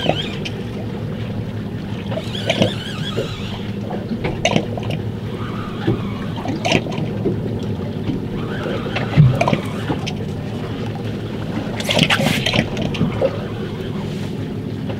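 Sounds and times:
boat engine hum: 0:00.0 - 0:14.9
water slapping against hull: 0:00.0 - 0:14.9
high wavering chirp: 0:02.2 - 0:03.8.

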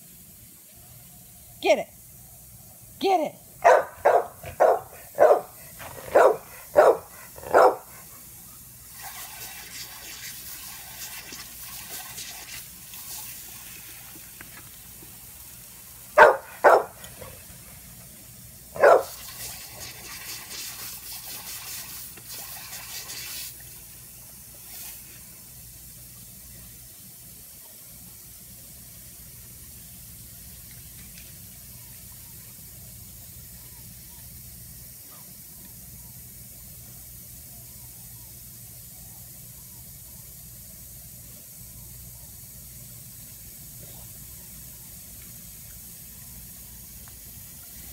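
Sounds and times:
sprinkler water spray hissing: 0:00.0 - 0:47.9
dog barking: 0:03.6 - 0:08.0, 0:16.2 - 0:17.0, 0:18.8 - 0:19.2.

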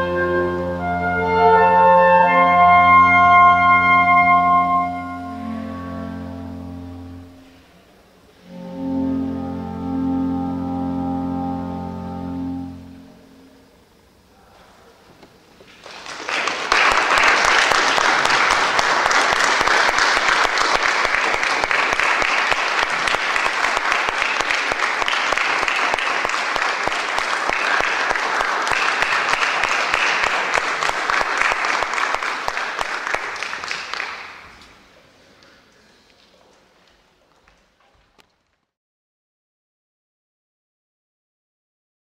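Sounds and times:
audience applauding: 0:15.7 - 0:35.0.

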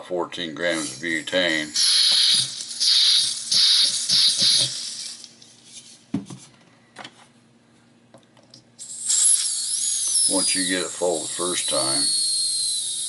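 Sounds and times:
butane gas hissing: 0:00.7 - 0:05.3, 0:08.8 - 0:13.0.

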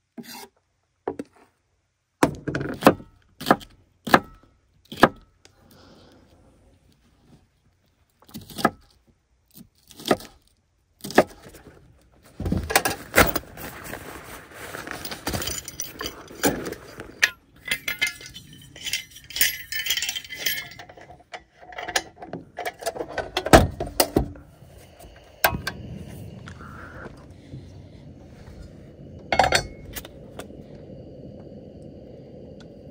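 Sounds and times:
metallic clinking and clattering: 0:14.8 - 0:24.4.

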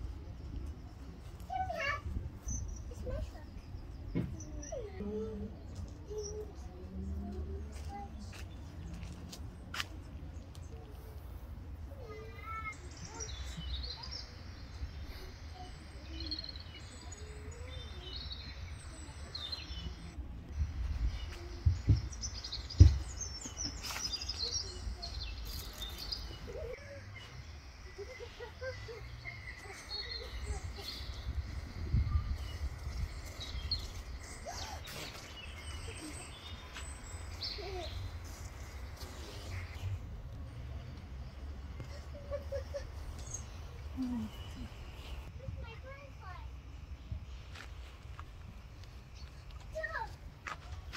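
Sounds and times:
small birds chirping: 0:00.0 - 0:50.9
wind rumble on microphone: 0:30.5 - 0:34.1.

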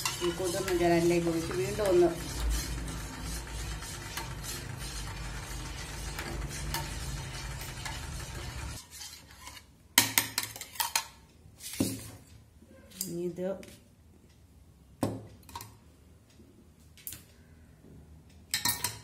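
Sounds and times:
steady low hum: 0:00.0 - 0:08.8
metal spoon stirring in bowl: 0:00.0 - 0:11.2, 0:18.6 - 0:19.0.

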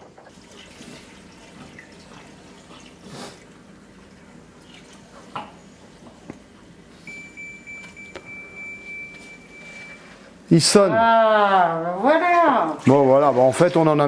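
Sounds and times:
water trickling into tank: 0:00.1 - 0:06.0
dishwasher high beep: 0:07.0 - 0:10.2.

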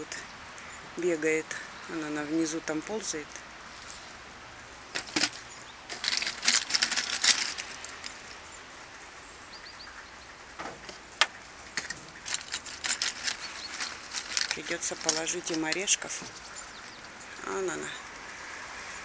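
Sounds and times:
steady outdoor hiss: 0:00.0 - 0:19.0
short rustles: 0:04.9 - 0:08.4, 0:10.6 - 0:17.4.

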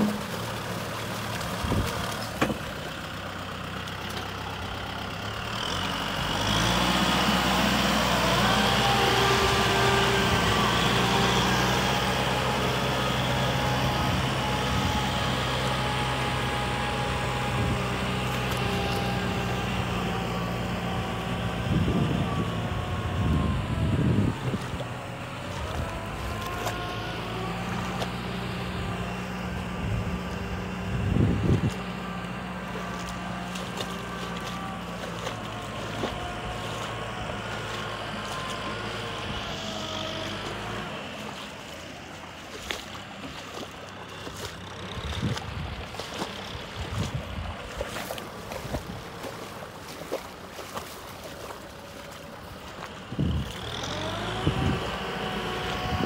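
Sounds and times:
tractor diesel engine running: 0:00.0 - 0:56.0
wind buffeting microphone: 0:01.5 - 0:02.0, 0:19.3 - 0:26.5, 0:28.6 - 0:32.3, 0:44.8 - 0:49.3, 0:53.0 - 0:56.0.

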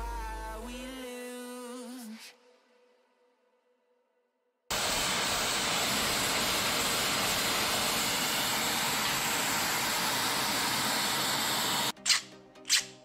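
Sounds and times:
gas torch flame hissing: 0:04.7 - 0:12.8.

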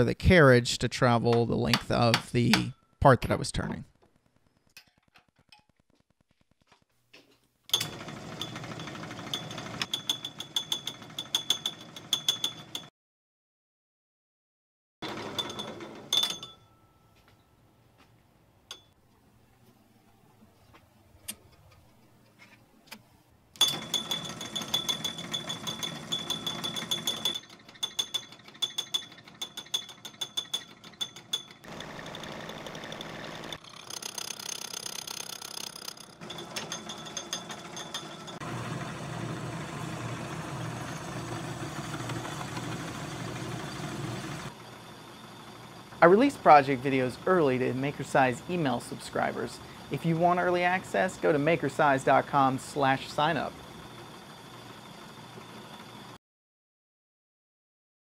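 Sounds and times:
metal lathe whining: 0:07.7 - 0:12.8, 0:23.6 - 0:56.2.

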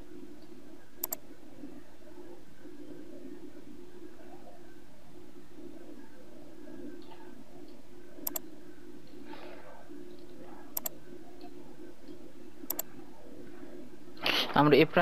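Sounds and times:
low steady hum: 0:00.0 - 0:15.0
computer mouse clicking: 0:01.0 - 0:01.2, 0:08.2 - 0:08.5, 0:10.1 - 0:11.5, 0:12.1 - 0:12.9.

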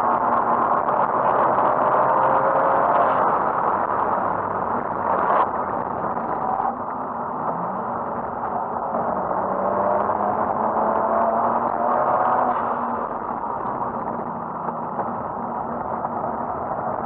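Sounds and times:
car engine running under load: 0:00.0 - 0:17.0
road and wind noise: 0:00.0 - 0:17.0.

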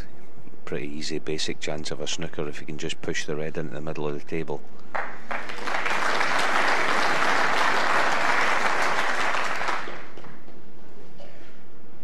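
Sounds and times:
audience applauding: 0:04.9 - 0:10.4.

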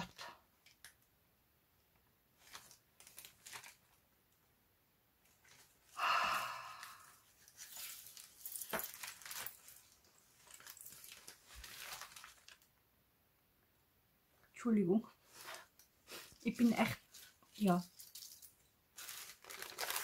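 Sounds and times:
paper rustling: 0:02.4 - 0:04.0, 0:07.3 - 0:12.6, 0:15.3 - 0:20.0.

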